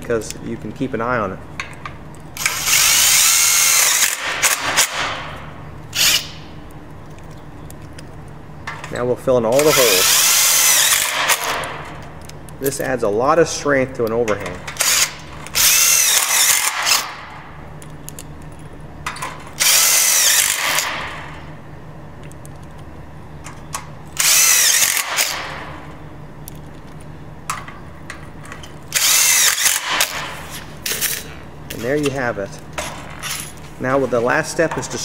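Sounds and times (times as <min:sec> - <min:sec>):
cordless drill driving screws into metal: 0:02.4 - 0:05.2, 0:09.6 - 0:11.7, 0:14.7 - 0:17.2, 0:19.6 - 0:21.0, 0:24.2 - 0:25.6, 0:28.9 - 0:30.3.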